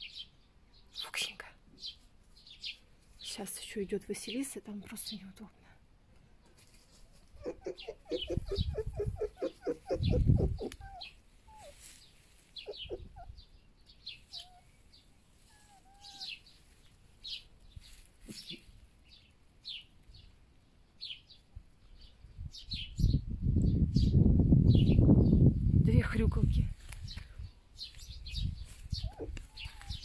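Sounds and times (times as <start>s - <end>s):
foxes chattering: 7.2s - 11.9s, 12.6s - 13.6s, 15.5s - 16.5s, 18.2s - 18.8s, 28.9s - 30.0s
fox squeaks and chirps: 7.2s - 12.0s, 12.6s - 13.4s, 14.2s - 14.8s, 15.4s - 16.5s, 28.4s - 30.0s.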